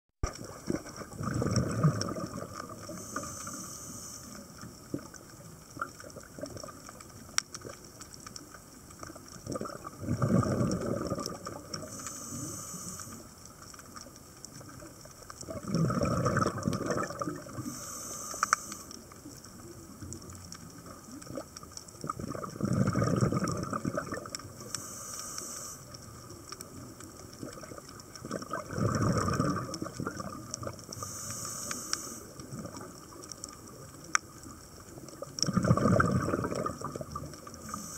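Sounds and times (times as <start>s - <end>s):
exhaled air bubbling: 0.2s - 37.9s
regulator inhalation hiss: 2.9s - 4.6s, 11.8s - 13.4s, 17.6s - 19.0s, 24.6s - 25.9s, 31.0s - 32.4s, 37.6s - 37.9s.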